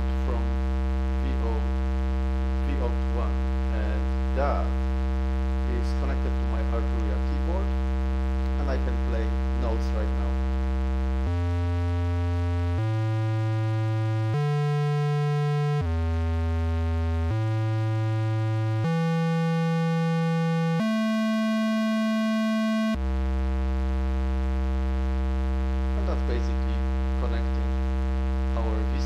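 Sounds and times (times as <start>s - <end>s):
synth triangle wave notes: 17.3s - 23.1s.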